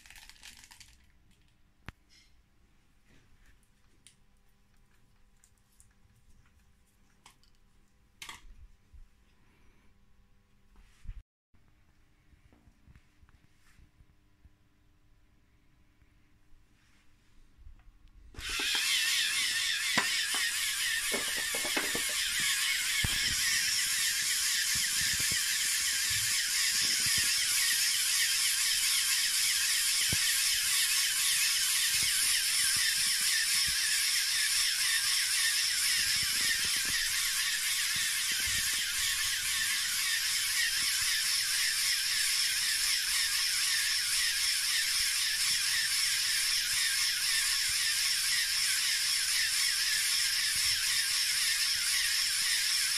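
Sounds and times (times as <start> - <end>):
air compressor running: 18.4 - 52.9.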